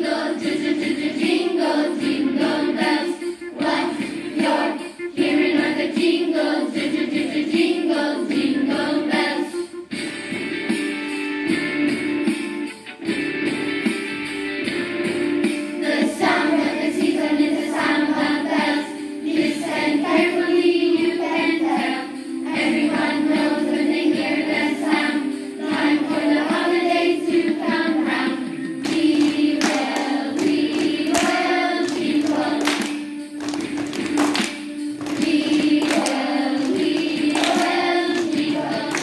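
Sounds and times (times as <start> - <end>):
children's choir singing: 0.0 - 9.8, 15.8 - 39.0
recorded backing track: 0.0 - 39.0
sharp claps: 28.8 - 39.0.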